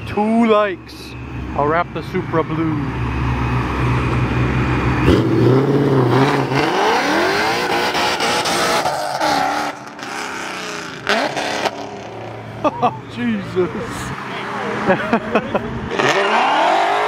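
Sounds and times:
car engine accelerating: 1.4s - 17.0s.

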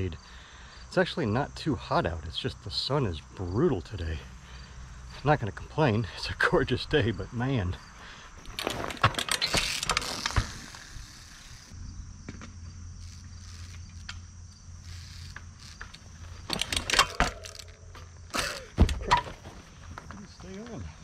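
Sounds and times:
bike freewheel and chain clicking: 8.4s - 11.8s, 13.0s - 18.7s.

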